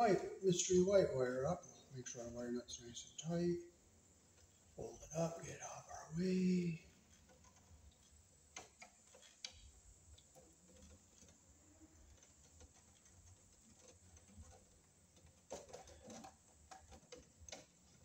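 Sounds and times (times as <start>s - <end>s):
rustling of electrical wires: 0.0s - 18.0s
faint clicks of wires: 7.0s - 11.4s.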